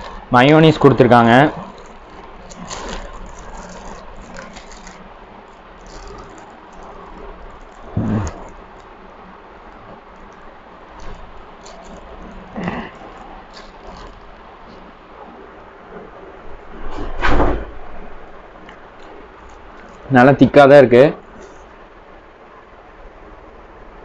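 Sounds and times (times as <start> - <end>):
foil crinkling: 0.0 - 14.9.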